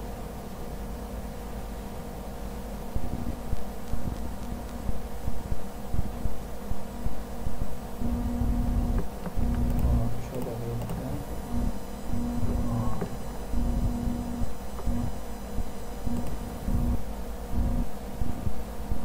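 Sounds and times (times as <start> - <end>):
steady background hum: 0.0 - 19.0
low buzz: 2.9 - 19.0.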